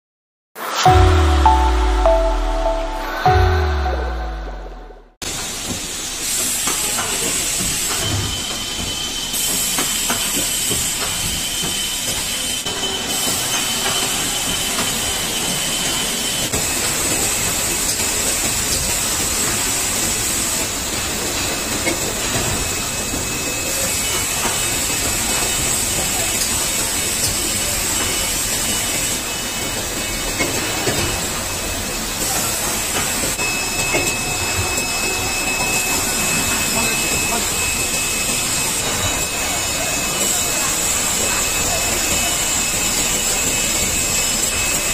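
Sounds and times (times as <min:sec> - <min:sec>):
high whine: 0:00.6 - 0:05.2
factory machinery drone: 0:00.6 - 0:44.9.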